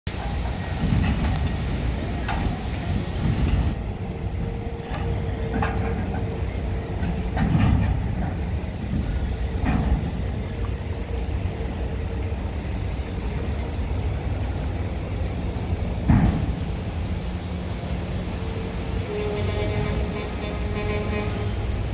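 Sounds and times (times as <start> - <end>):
low machinery rumble: 0.1 - 21.9
knocks and clanks: 4.8 - 6.4, 7.0 - 10.2, 16.0 - 16.6.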